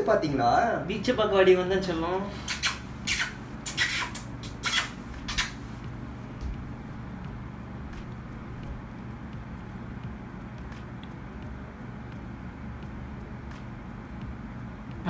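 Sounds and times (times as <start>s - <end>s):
low steady hum: 0.0s - 15.0s
smacking kiss sounds: 2.4s - 5.6s.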